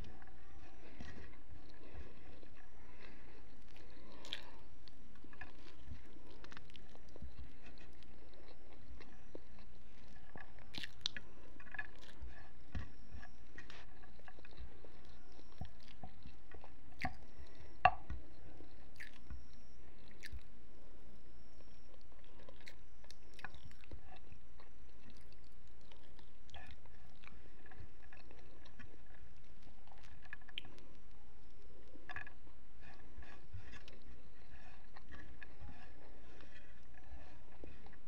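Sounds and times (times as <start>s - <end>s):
person chewing: 0.0s - 20.5s, 21.6s - 38.0s.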